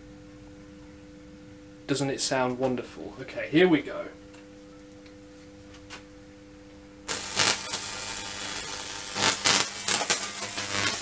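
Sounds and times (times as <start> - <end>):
electric arc crackling buzz: 7.0 - 11.0
sharp electric cracks: 7.1 - 11.0.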